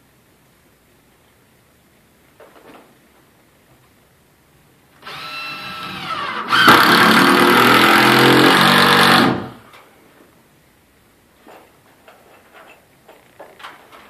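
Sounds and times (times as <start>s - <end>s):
impact driver hammering: 5.8s - 9.6s.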